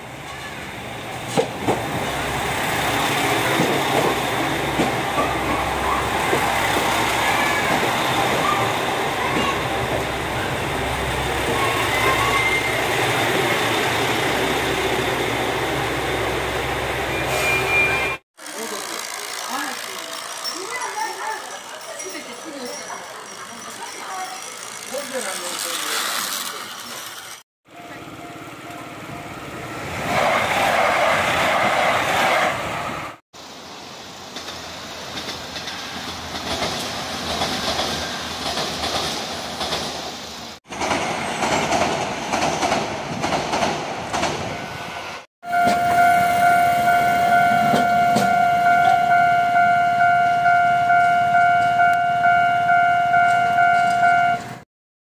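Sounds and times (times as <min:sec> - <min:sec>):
trains running over rails: 0:00.0 - 0:54.6
pulsing ringing warning tone: 0:45.5 - 0:54.5.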